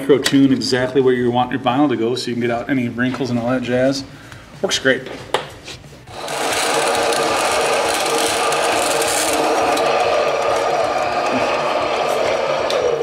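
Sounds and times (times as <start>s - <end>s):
band saw cutting metal: 6.1s - 13.0s.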